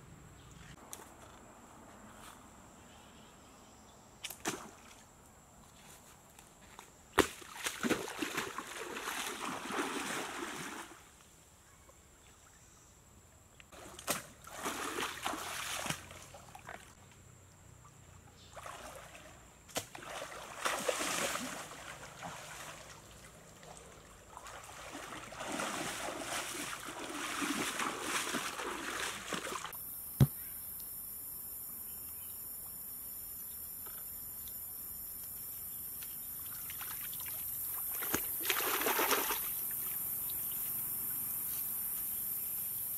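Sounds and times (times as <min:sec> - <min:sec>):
water splashing from wading: 0:07.2 - 0:11.0, 0:13.8 - 0:16.9, 0:18.5 - 0:29.8, 0:36.4 - 0:40.0.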